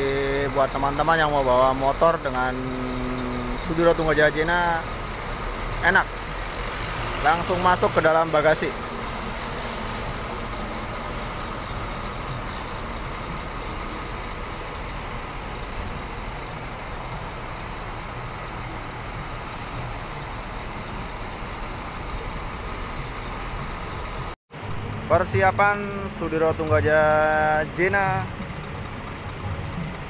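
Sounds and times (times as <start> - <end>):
diesel engine idling: 0.0 - 30.0
high hiss: 19.4 - 24.4.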